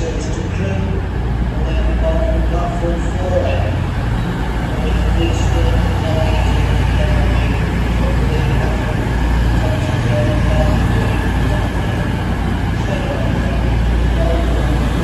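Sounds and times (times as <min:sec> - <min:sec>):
diesel train engine droning: 0:00.0 - 0:15.0.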